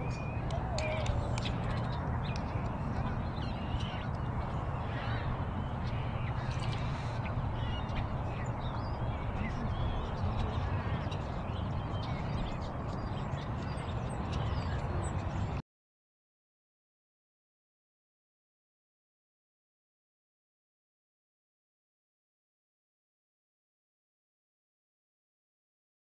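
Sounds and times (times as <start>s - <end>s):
steady low rumble: 0.0s - 15.6s.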